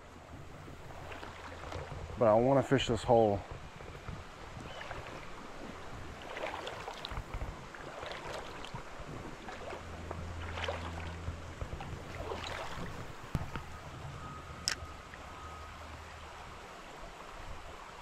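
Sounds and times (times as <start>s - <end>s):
river rushing: 0.0s - 18.0s
wind rumble on microphone: 0.0s - 18.0s
wading steps splashing in water: 0.5s - 13.9s.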